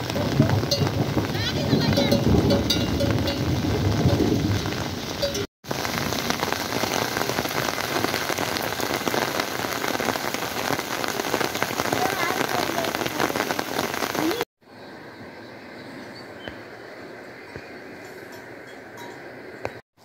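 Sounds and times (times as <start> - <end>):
rain on a plastic tarp: 0.0 - 14.5.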